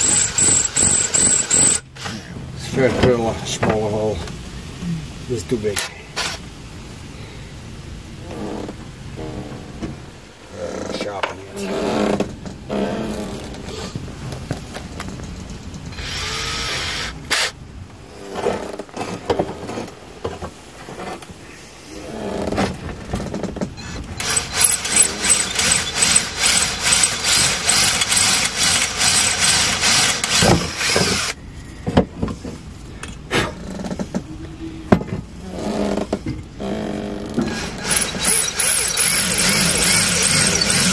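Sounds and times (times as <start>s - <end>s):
drill grinding into metal: 0.0s - 2.2s, 15.9s - 17.6s, 24.2s - 31.4s, 37.4s - 40.9s.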